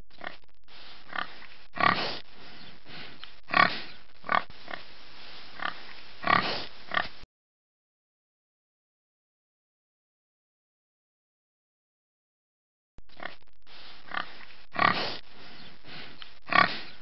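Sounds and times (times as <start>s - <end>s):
pigs grunting and oinking: 0.1s - 0.4s, 1.0s - 2.2s, 2.9s - 4.9s, 5.6s - 7.2s, 13.1s - 13.4s, 14.0s - 15.2s, 15.9s - 17.0s
background hiss: 0.2s - 7.2s, 13.2s - 17.0s.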